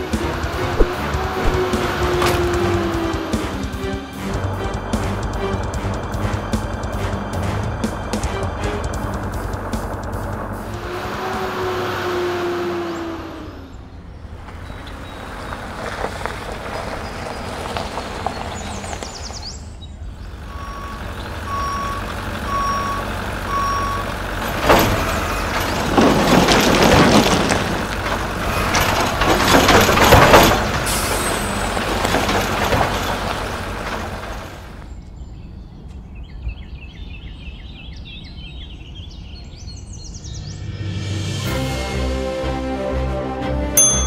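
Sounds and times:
trash clattering out of truck: 0.0s - 10.6s, 21.2s - 35.0s
truck engine running: 0.0s - 35.0s
birds chirping: 6.1s - 24.4s, 30.8s - 41.1s
reversing beeps: 20.5s - 24.1s.

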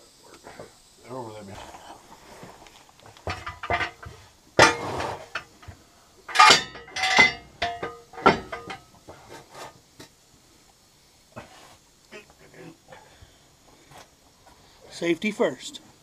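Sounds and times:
metal clanks and clinks: 3.2s - 9.0s.

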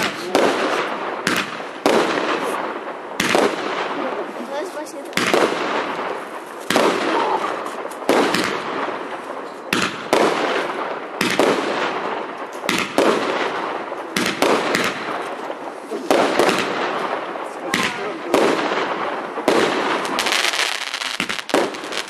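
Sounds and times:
crackling hiss of fireworks: 0.0s - 22.0s
firework reports: 0.0s - 22.0s.

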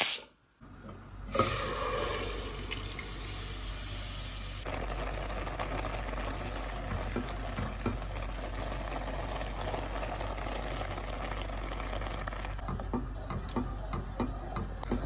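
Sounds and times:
rice simmering with bubbling pops: 4.6s - 15.0s.

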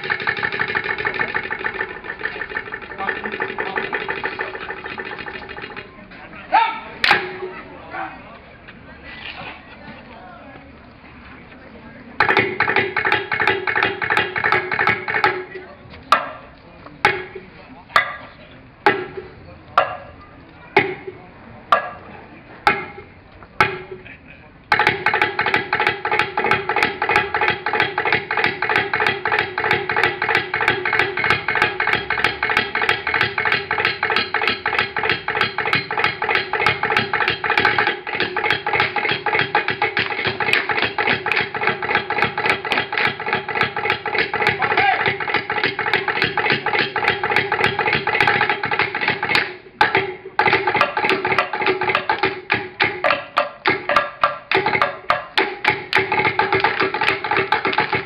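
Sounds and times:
group clapping and slapping: 24.8s - 58.0s.

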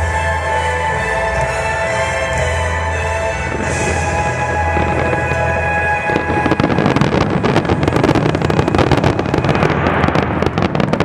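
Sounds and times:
fireworks bangs and crackling: 3.5s - 11.0s.

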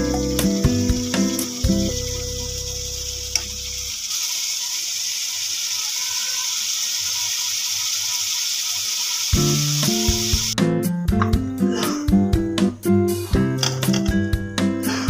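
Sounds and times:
background music: 0.0s - 3.0s, 9.4s - 15.0s
spices sizzling in oil: 0.0s - 10.6s.

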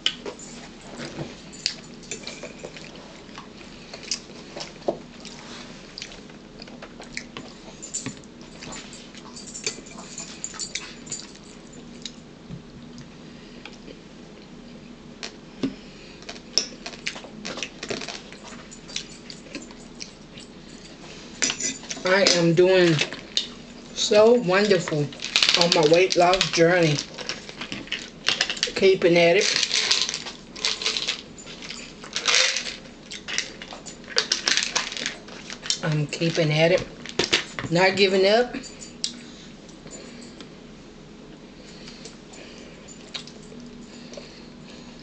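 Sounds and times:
faint steady hum: 0.0s - 45.0s
chewing and mouth smacks: 1.6s - 7.5s, 43.0s - 44.2s.

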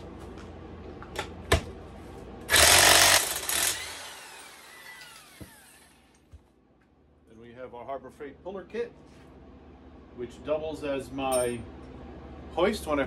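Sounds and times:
impact wrench hammering: 2.5s - 5.6s
motor winding down whine: 2.5s - 6.2s.

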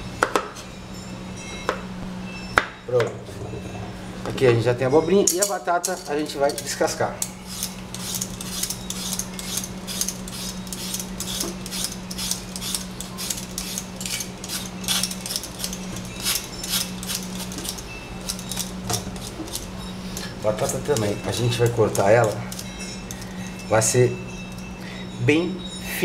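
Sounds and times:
peeler scraping potato: 7.4s - 22.6s.

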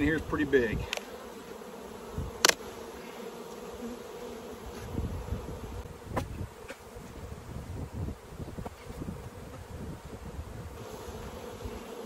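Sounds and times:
honeybees buzzing: 0.0s - 12.0s
knock on wooden hive box: 6.1s - 6.8s.

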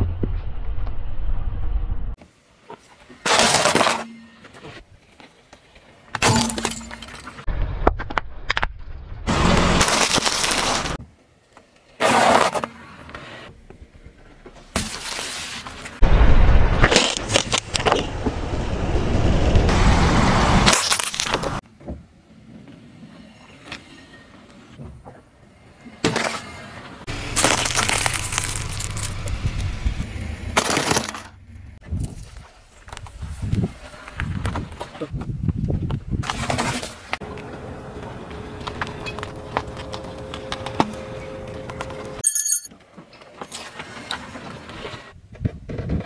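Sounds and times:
low rumble of a tyre: 0.0s - 2.2s, 7.5s - 11.4s, 16.0s - 25.8s, 26.6s - 30.6s, 37.1s - 42.2s
lollipops crunching under tyre: 9.3s - 11.0s, 16.8s - 18.2s, 20.6s - 21.6s, 27.1s - 31.3s, 37.2s - 42.2s
tyre crushing plastic beads: 9.4s - 11.0s, 20.7s - 21.6s, 27.1s - 29.8s.

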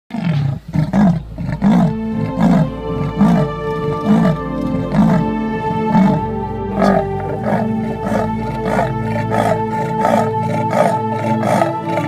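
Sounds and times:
big cat growling: 0.1s - 12.0s
background music with held tones: 0.6s - 12.0s.

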